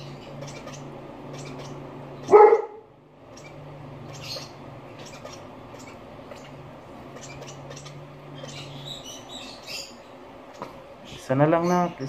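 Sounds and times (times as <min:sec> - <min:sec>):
bird chick squeaking: 0:00.0 - 0:12.0
low steady hum: 0:00.0 - 0:12.0
dog barking: 0:02.2 - 0:02.9.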